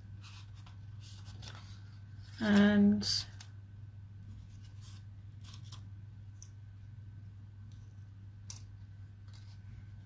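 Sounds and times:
low electrical hum: 0.0s - 10.0s
paper cards rustling: 0.1s - 3.6s, 4.3s - 6.5s, 9.2s - 10.0s.

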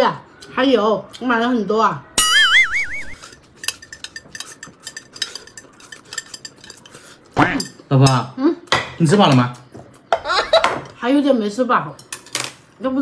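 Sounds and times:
warbling whistle-like tone: 2.2s - 3.2s
utensils clinking on dishes: 2.9s - 11.0s.

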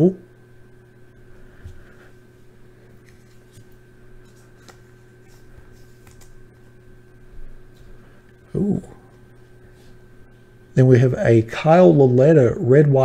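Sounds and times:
steady electrical hum: 0.0s - 13.0s
trading cards clicking and rustling: 3.0s - 6.6s.

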